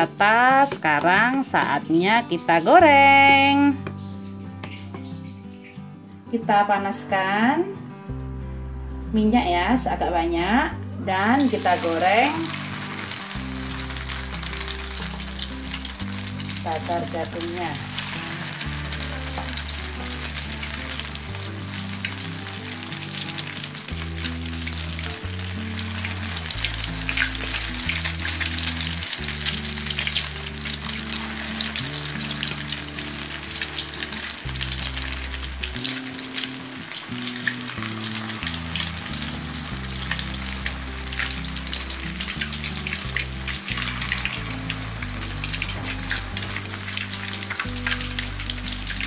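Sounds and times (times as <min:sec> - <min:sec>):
batter deep-frying in oil: 0:11.4 - 0:49.0.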